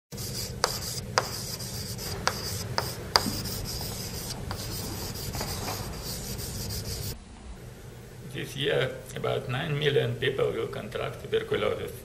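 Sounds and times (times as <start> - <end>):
chalk scratching on blackboard: 0.1 - 7.2
chalk tapping on board: 0.1 - 7.2.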